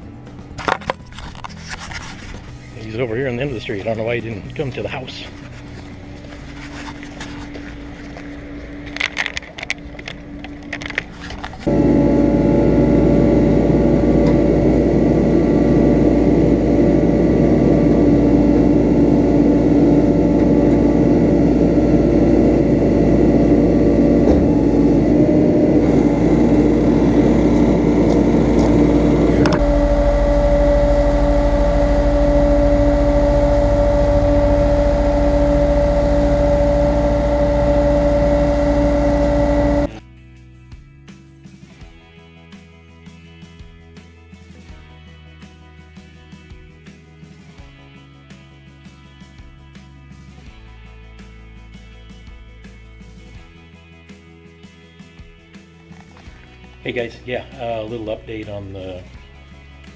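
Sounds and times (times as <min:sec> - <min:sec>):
truck engine running: 0:02.2 - 0:40.0
hydraulic whine: 0:06.4 - 0:40.0.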